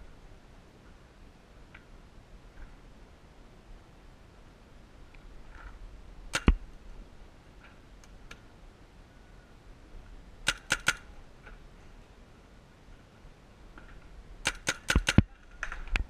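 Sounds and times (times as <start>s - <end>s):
paintball marker pops: 6.4s - 6.6s.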